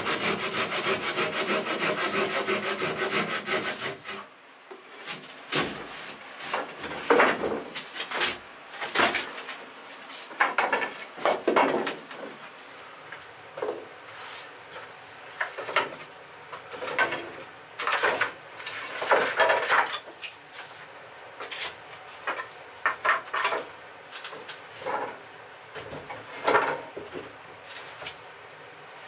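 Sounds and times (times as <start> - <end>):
wooden boards knocking and scraping: 5.0 - 9.6, 10.2 - 12.5, 14.7 - 20.2, 21.4 - 25.2, 25.8 - 28.2.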